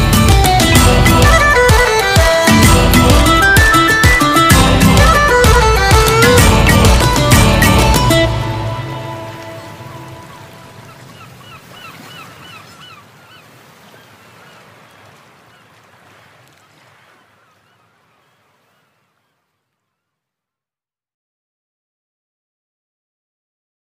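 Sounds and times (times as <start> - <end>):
steady rushing wash: 0.0 - 17.1
bird chirps: 9.6 - 14.6.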